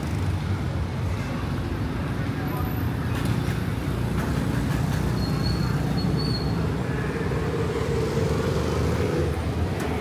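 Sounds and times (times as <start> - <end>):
passing vehicles rumbling: 0.0 - 10.0
engine hum: 6.6 - 10.0.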